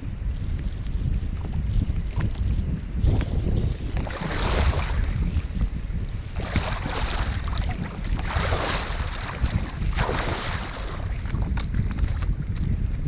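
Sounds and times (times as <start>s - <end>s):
wind buffeting microphone: 0.0s - 13.0s
lake water splashing: 3.8s - 5.4s, 6.3s - 12.7s.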